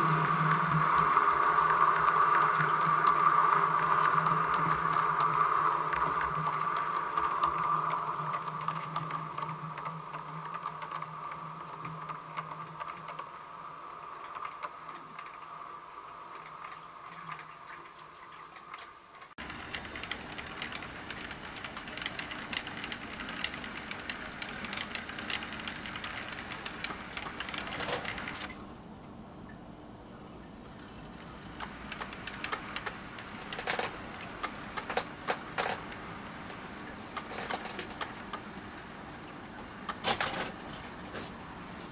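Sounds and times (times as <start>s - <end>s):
model train motor hum: 0.0s - 16.7s, 19.4s - 28.5s
wheels clicking over rails: 0.0s - 17.7s, 18.6s - 28.6s, 30.8s - 41.9s.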